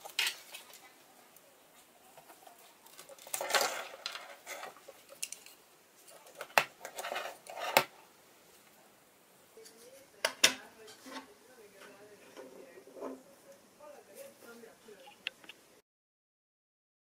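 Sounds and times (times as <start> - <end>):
rustle of wires and boards: 0.0 - 8.8.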